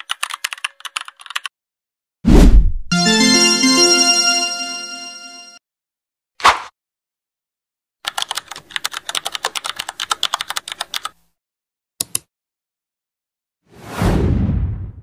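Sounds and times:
keyboard typing clicks: 0:12.0 - 0:12.3.

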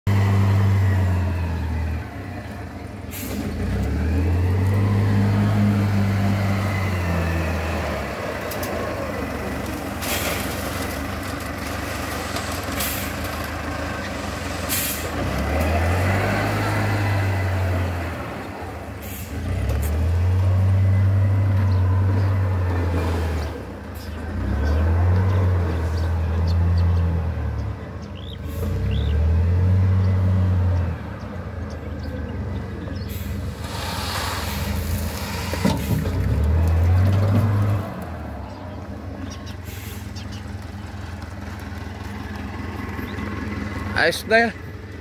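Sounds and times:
loader engine revving: 0:00.0 - 0:45.0
gravel loading into truck bed: 0:07.8 - 0:17.0, 0:33.1 - 0:38.1.

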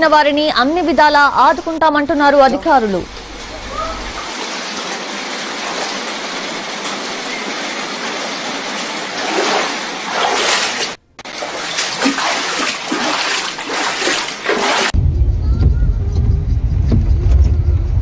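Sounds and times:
rushing water: 0:00.6 - 0:15.0
water splashing around wading legs: 0:03.2 - 0:15.0.

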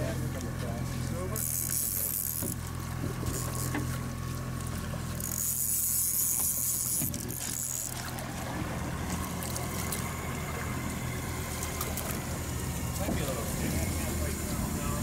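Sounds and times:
boat engine humming: 0:00.0 - 0:15.0
water washing along hull: 0:05.8 - 0:15.0.

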